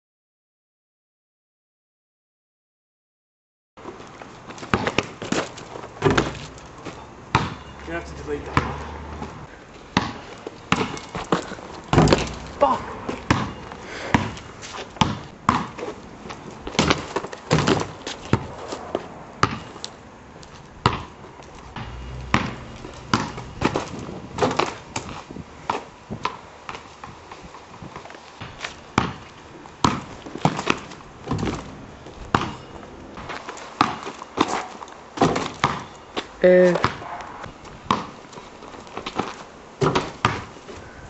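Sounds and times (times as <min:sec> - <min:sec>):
basketball bouncing on concrete: 0:04.6 - 0:05.4, 0:06.0 - 0:16.0, 0:16.7 - 0:18.5, 0:19.4 - 0:19.7, 0:20.8 - 0:21.1, 0:21.7 - 0:24.6, 0:28.5 - 0:31.7, 0:32.3 - 0:32.6, 0:35.2 - 0:35.9, 0:36.6 - 0:37.1, 0:37.8 - 0:38.2, 0:39.8 - 0:40.5.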